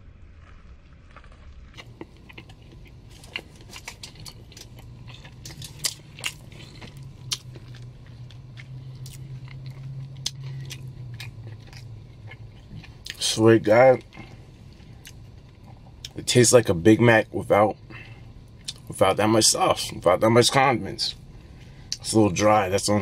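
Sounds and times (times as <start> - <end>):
low steady hum: 0.0 - 23.0
person chewing with wet smacks: 1.7 - 16.4, 18.0 - 18.9.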